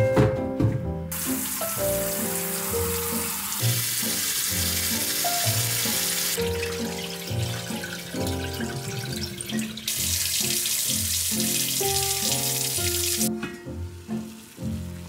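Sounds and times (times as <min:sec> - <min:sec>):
tap water running into a sink: 0:01.1 - 0:15.0.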